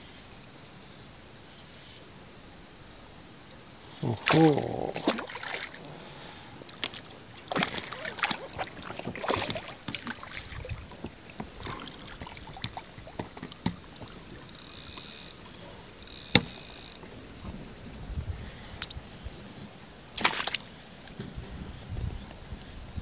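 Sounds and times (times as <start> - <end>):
fish splashing at the surface: 4.1 - 14.5, 20.2 - 20.7
knocks and clicks of fishing gear: 6.8 - 15.2, 16.1 - 17.1.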